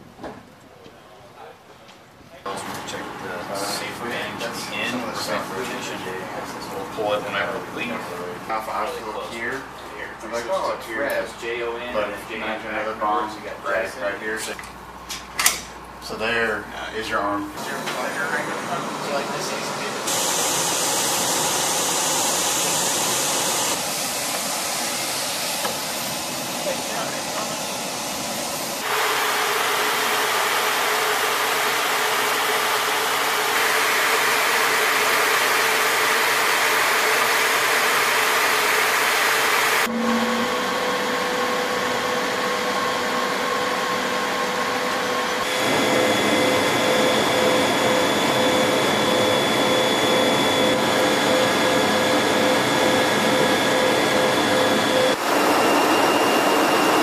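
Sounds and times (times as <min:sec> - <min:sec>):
jet engine and airflow noise: 0:02.4 - 0:57.0
steady whining tones: 0:16.0 - 0:57.0.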